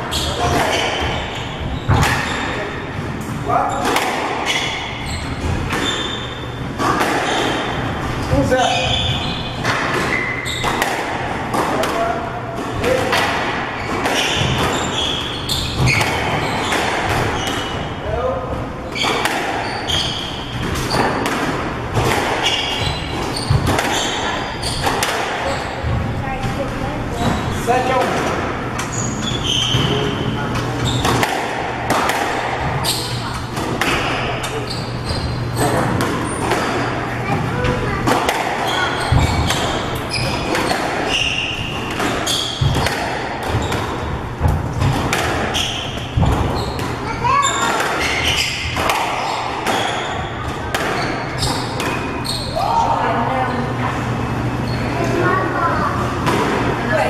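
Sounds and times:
squash ball hitting rackets and walls: 0.0 - 53.4, 54.6 - 57.0
shoes squeaking on wooden floor: 4.4 - 10.8, 13.8 - 17.9, 18.8 - 21.2, 22.0 - 27.8, 28.8 - 31.2, 32.6 - 38.0, 38.6 - 52.8.

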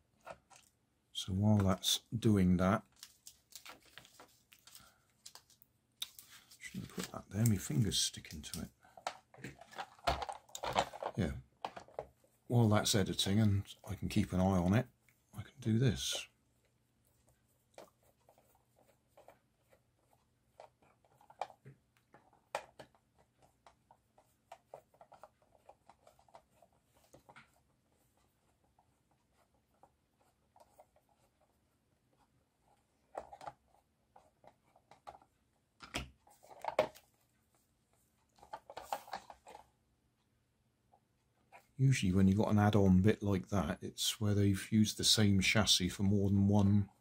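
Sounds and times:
plastic parts clattering: 2.9 - 12.1, 34.5 - 37.1, 38.3 - 39.7.

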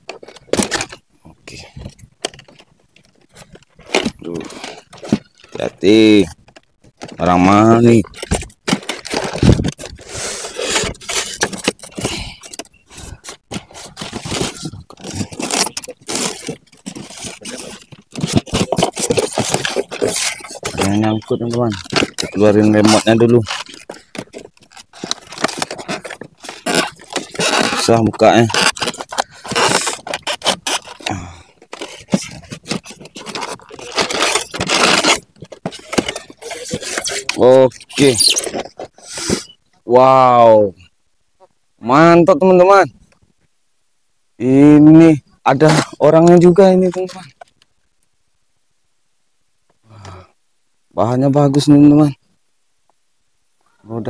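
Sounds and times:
clicks and rustles: 0.0 - 39.8
polystyrene foam scraping: 7.8 - 39.6.

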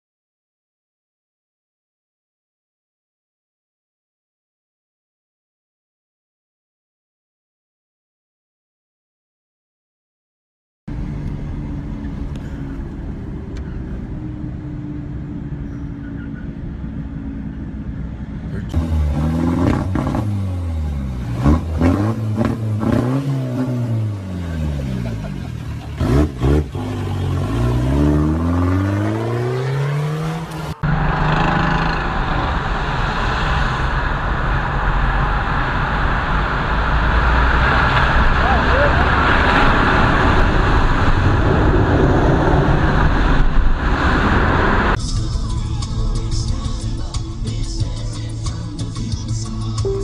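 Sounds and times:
car engine accelerating: 10.9 - 50.0
highway traffic rumble: 10.9 - 50.0.

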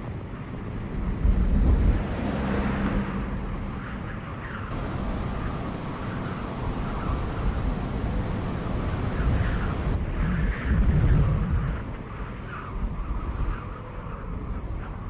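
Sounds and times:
engine and road rumble in car cabin: 4.7 - 10.0
vehicle driving by: 4.7 - 10.0.

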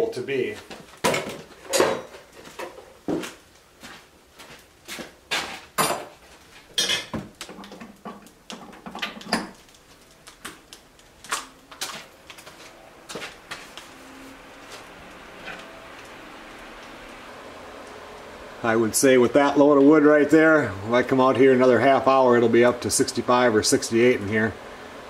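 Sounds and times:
faint steady hiss: 0.0 - 25.0
firewood clunking into stove: 1.0 - 3.2, 5.4 - 9.7
footsteps on wooden floor: 2.4 - 5.7, 11.9 - 13.8
knocks and clatter: 6.8 - 9.7.

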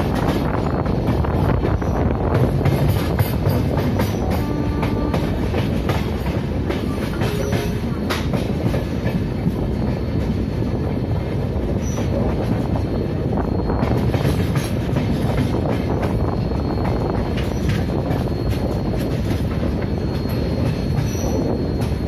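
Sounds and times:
train wheel squeal: 0.0 - 22.0
train wheels clattering over joints: 0.0 - 22.0.

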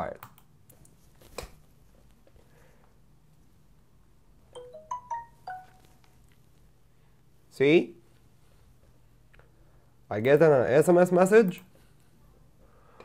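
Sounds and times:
phone text notification chime: 4.6 - 6.0.

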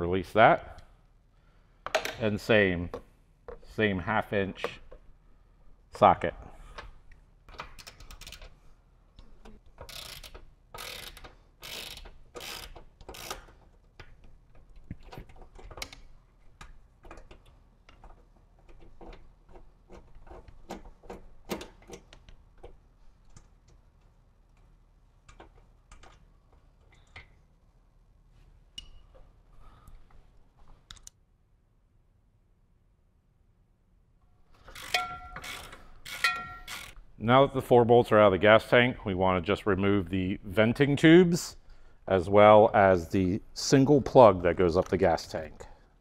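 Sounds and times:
ratchet wrench clicking: 7.8 - 8.5, 9.8 - 13.6, 34.6 - 37.0
handled parts rattling: 34.6 - 37.0.

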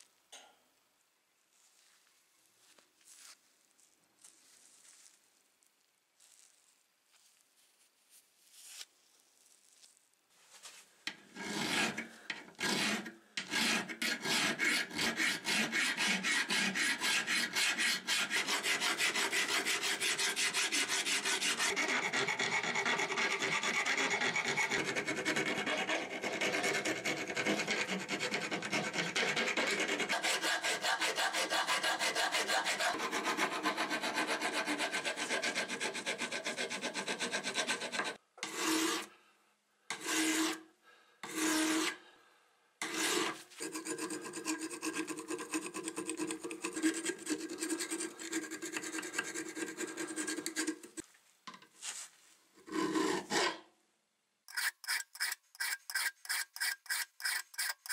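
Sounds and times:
file rasping on rusty steel: 11.3 - 39.1, 39.9 - 40.6, 41.2 - 42.0, 42.8 - 51.0, 52.6 - 53.6, 54.5 - 57.9.

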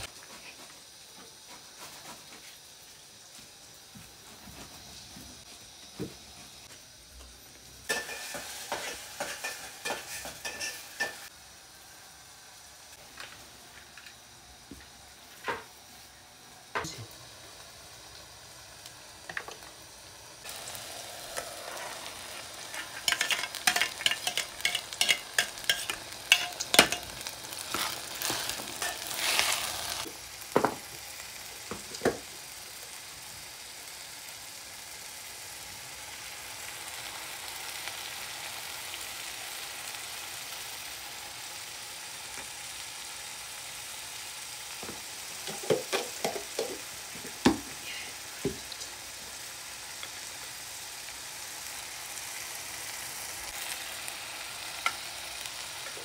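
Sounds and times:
tomato sizzling in hot oil: 0.0 - 56.0.

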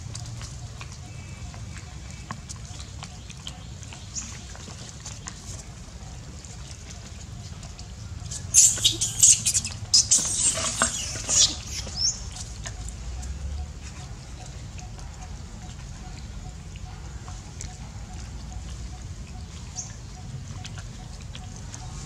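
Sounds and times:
monkeys squealing and shrieking: 8.3 - 12.5.

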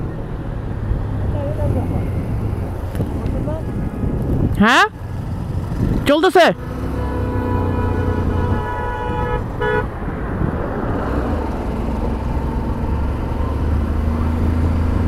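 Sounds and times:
motorcycle engine humming: 0.0 - 15.0
wind and road noise: 0.0 - 15.0
vehicle horn: 6.8 - 9.9.

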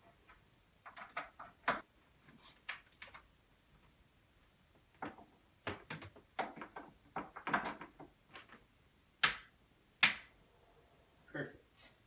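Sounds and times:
knocks and clatters on desk: 0.2 - 1.9, 4.9 - 8.7.

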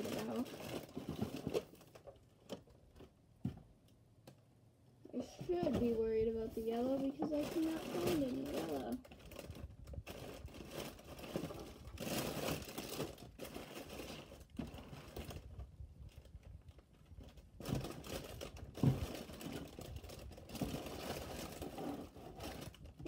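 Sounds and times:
plastic bags crinkling: 0.0 - 3.1, 5.5 - 23.0.

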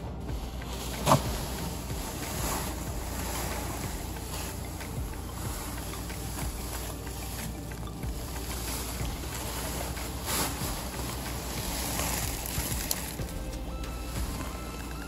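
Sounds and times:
soil pouring from plastic bag: 0.4 - 15.0.

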